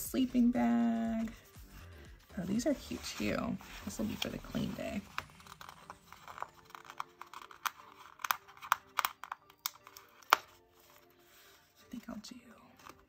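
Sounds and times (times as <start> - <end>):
soft background music: 0.0 - 13.0
paper clicks and crinkles: 3.6 - 11.6.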